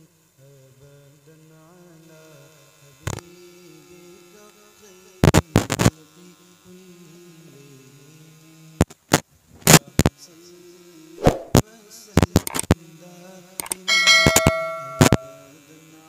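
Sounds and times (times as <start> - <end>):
man humming: 9.7 - 16.0.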